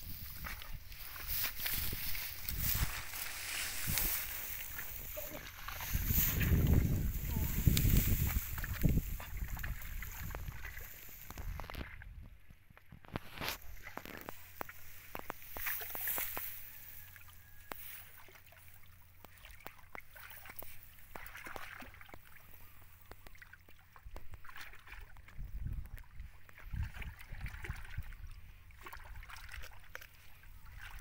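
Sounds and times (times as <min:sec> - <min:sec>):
wind rumble on microphone: 0:00.0 - 0:14.4, 0:25.1 - 0:29.2.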